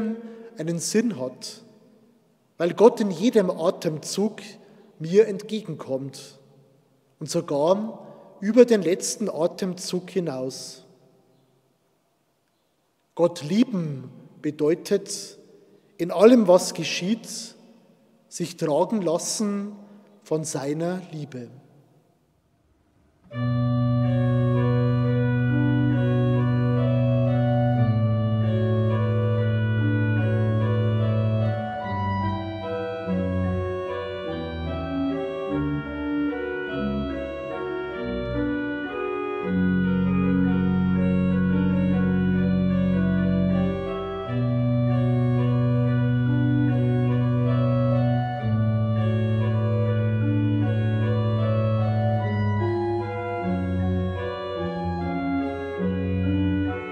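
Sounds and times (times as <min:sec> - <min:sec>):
low organ pedal notes: 0:00.0 - 0:01.7, 0:02.4 - 0:06.5, 0:23.0 - 0:56.9
pipe organ chords: 0:00.0 - 0:21.9, 0:22.6 - 0:56.9.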